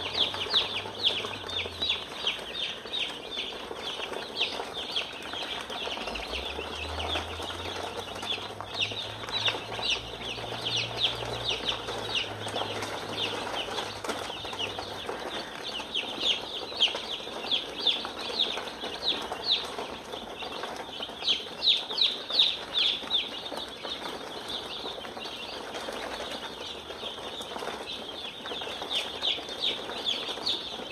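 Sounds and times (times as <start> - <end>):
chicks peeping: 0.0 - 30.9.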